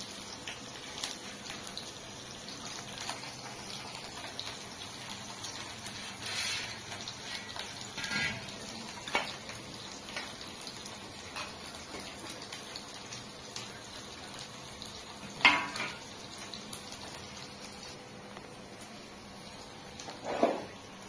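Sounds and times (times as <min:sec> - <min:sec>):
frying sizzle in a wok: 0:00.0 - 0:21.0
steel bowls and utensils clinking: 0:06.0 - 0:09.4, 0:15.4 - 0:16.0.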